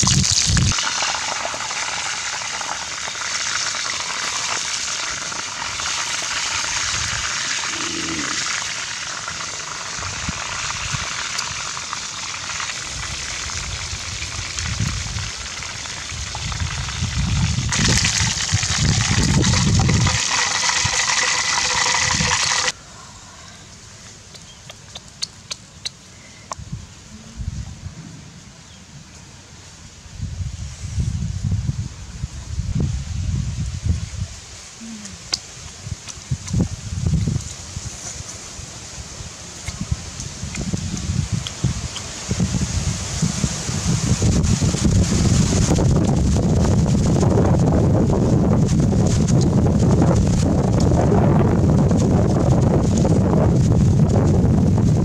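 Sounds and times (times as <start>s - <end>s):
chicken sizzling in hot oil: 0.0s - 22.8s.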